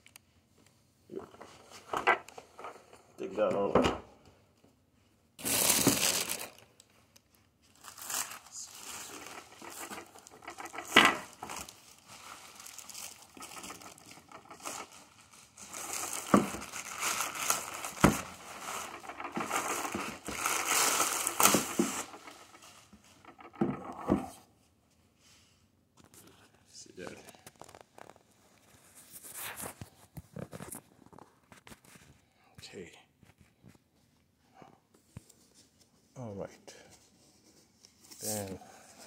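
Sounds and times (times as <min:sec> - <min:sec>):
plastic film crinkling: 0:05.4 - 0:24.0, 0:27.0 - 0:32.0.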